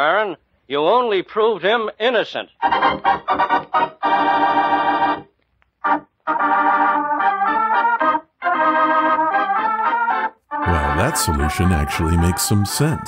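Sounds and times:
organ chords: 0:02.6 - 0:13.0.

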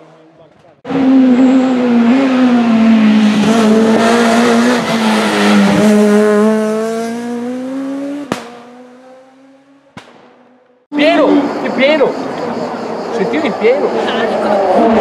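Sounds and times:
rally car engine revving: 0:00.0 - 0:10.8
sharp crack: 0:08.2 - 0:08.7, 0:09.9 - 0:10.7.

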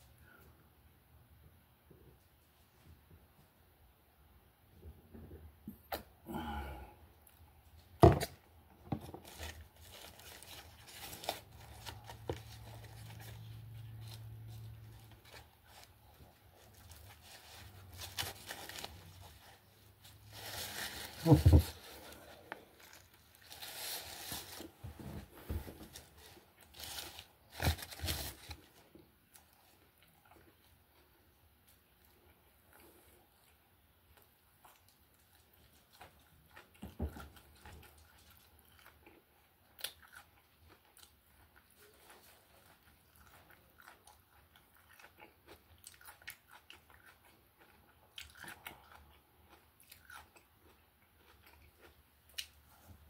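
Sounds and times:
foil wrapper crinkling: 0:09.0 - 0:24.8, 0:25.8 - 0:28.8.

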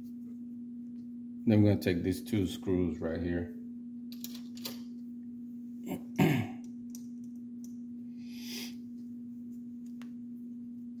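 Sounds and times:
steady hum: 0:00.0 - 0:11.0
tools and parts clicking: 0:04.1 - 0:04.9.

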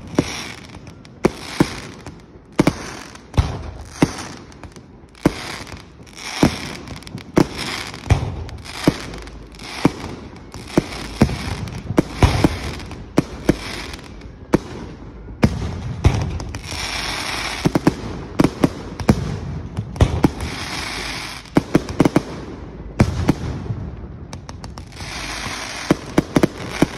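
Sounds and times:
fireworks crackling: 0:00.0 - 0:26.9.

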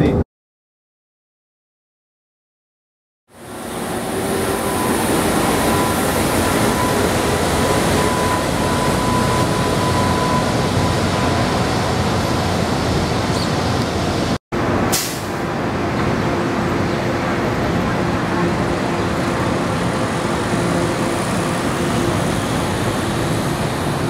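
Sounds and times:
train car rumble: 0:03.4 - 0:24.0
short hiss: 0:14.9 - 0:15.3.

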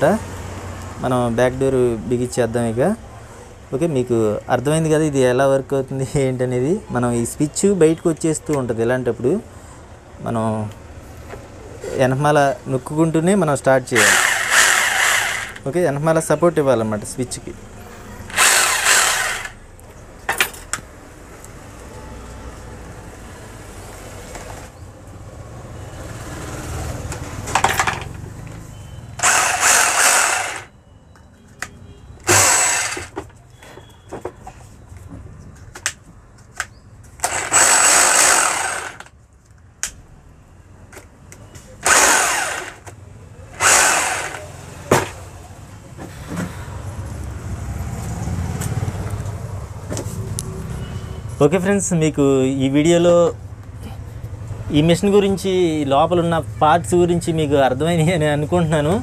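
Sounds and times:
power tool motor bursts: 0:13.9 - 0:15.6, 0:18.3 - 0:19.6, 0:29.2 - 0:30.7, 0:32.2 - 0:33.2, 0:37.2 - 0:39.1, 0:41.8 - 0:42.9, 0:43.6 - 0:44.6
clicks and handling knocks: 0:27.1 - 0:28.3.

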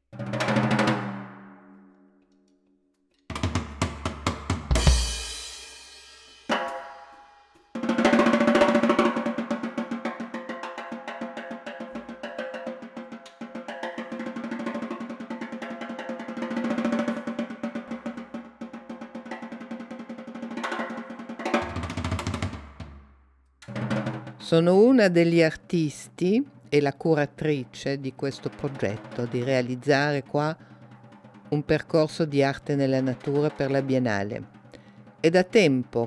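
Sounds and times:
fast drum roll: 0:00.2 - 0:01.3, 0:03.3 - 0:06.8, 0:07.7 - 0:36.0
heavy drum hits: 0:03.3 - 0:06.9
cymbal crash: 0:04.7 - 0:07.8.

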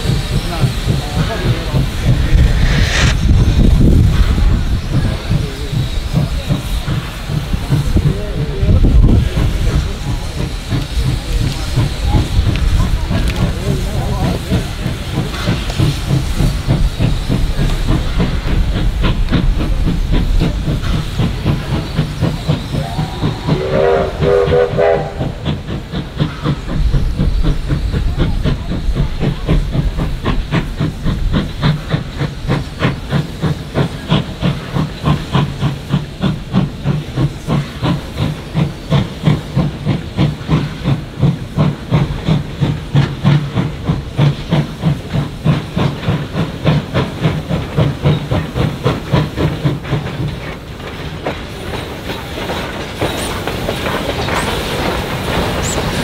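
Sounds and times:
hissing steam: 0:00.0 - 0:56.0
steam locomotive chuffing: 0:00.0 - 0:56.0
steam whistle: 0:22.8 - 0:25.4.

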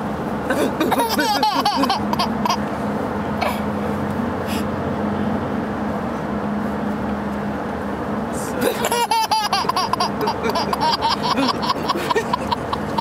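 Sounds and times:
car cabin road drone: 0:00.0 - 0:13.0
baby laughing: 0:00.6 - 0:02.6, 0:08.6 - 0:13.0.

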